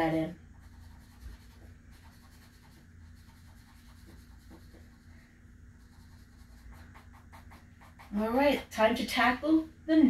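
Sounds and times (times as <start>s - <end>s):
pencil shading on paper: 0.5s - 5.1s, 5.8s - 8.5s.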